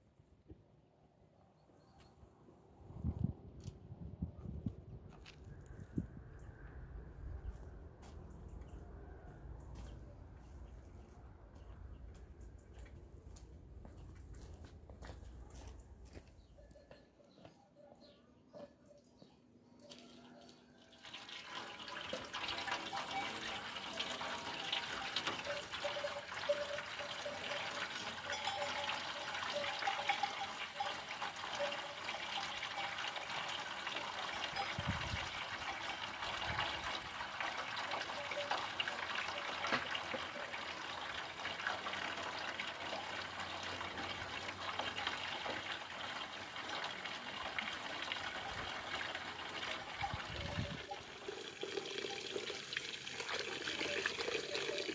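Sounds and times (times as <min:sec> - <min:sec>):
water pouring into metal basin: 0:20.9 - 0:54.9.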